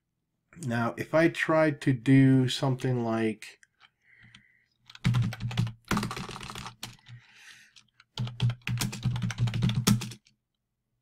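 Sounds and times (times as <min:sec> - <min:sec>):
typing on computer keyboard: 0:04.2 - 0:10.4.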